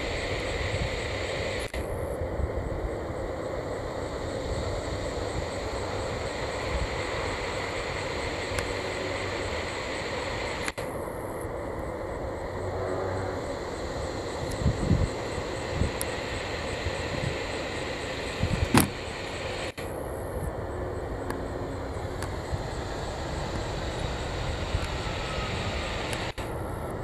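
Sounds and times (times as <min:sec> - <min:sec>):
jet engines rushing: 0:00.0 - 0:27.0.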